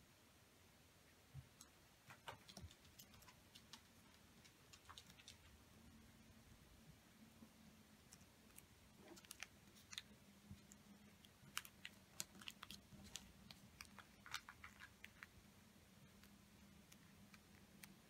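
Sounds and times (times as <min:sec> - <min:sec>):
faint steady hum: 0:00.0 - 0:18.0
paper being folded and creased: 0:08.5 - 0:15.3.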